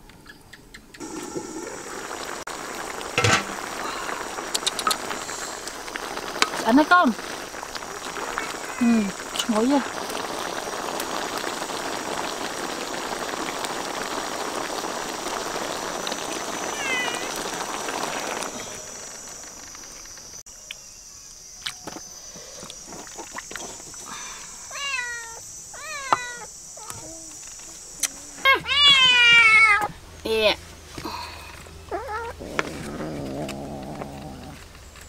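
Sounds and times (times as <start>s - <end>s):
steady hiss: 1.0s - 35.0s
cat meowing: 8.1s - 8.9s, 16.7s - 17.4s, 28.5s - 29.9s.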